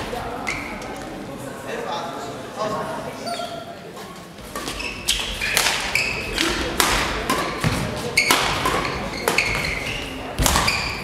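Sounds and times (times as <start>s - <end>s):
shoes squeaking on court floor: 0.4s - 1.1s, 3.2s - 6.7s, 7.3s - 11.0s
rackets hitting shuttlecock: 4.5s - 11.0s.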